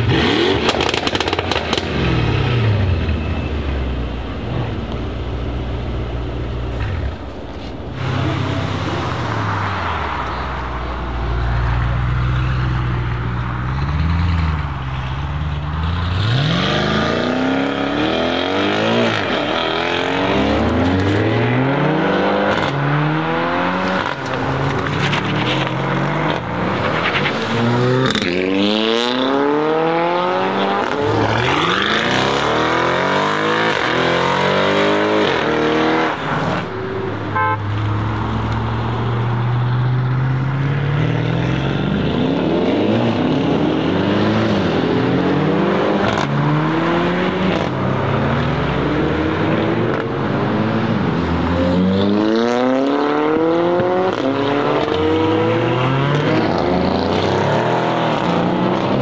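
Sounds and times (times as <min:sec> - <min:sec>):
cars accelerating hard: 0:00.0 - 0:03.2, 0:07.0 - 0:59.0
rattle of sharp pops: 0:00.7 - 0:01.9.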